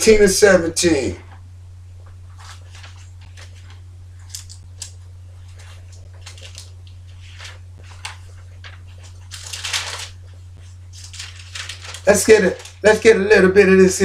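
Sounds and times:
low electrical hum: 0.0s - 14.0s
thin pages rustling and turning: 2.1s - 12.8s.

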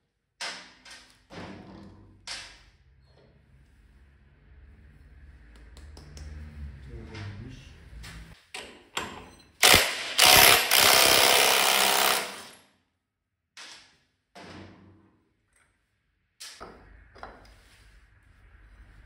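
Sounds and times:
tools clicking and knocking: 8.5s - 11.2s
impact wrench loosening bolts: 8.6s - 12.6s.

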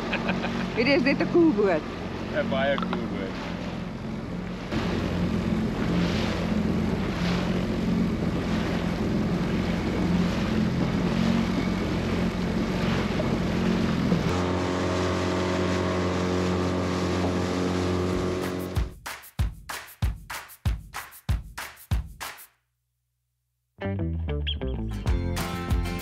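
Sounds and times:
outboard motor running: 0.0s - 18.9s
water rushing past hull: 0.0s - 18.9s.

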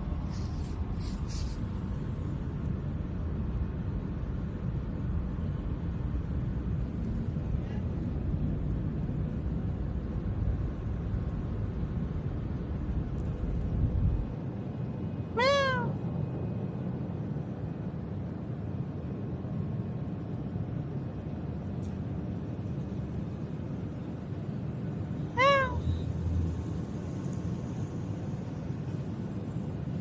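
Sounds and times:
cat meowing: 15.3s - 16.0s, 25.3s - 26.0s.

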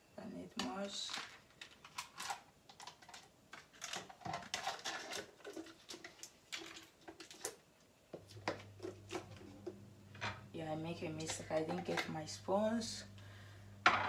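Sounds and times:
low steady hum: 4.5s - 14.0s.

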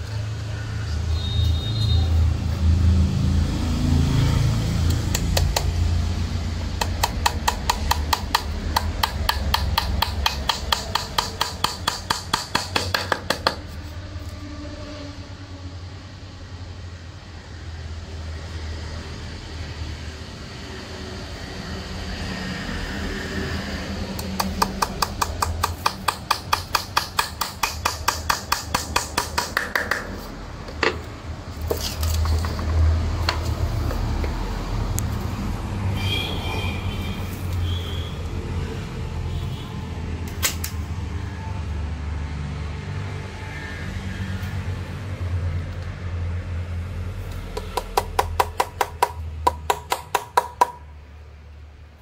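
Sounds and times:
hammer tapping nail into wood: 6.8s - 13.6s, 24.2s - 30.2s, 47.6s - 50.8s.

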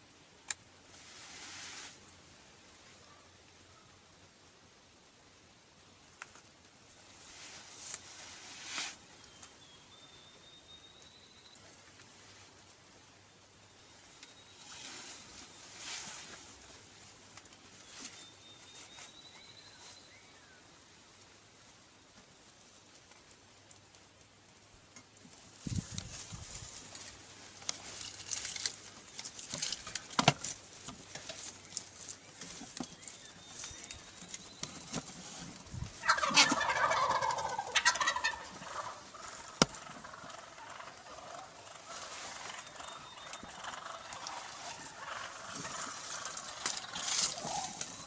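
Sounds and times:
faint rustling: 0.9s - 2.1s, 6.2s - 9.6s, 13.9s - 20.2s, 24.9s - 48.0s
turkey gobbling: 35.9s - 48.0s.

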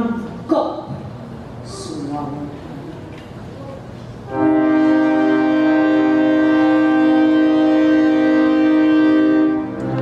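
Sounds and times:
orchestra sustained chord: 4.3s - 10.0s.

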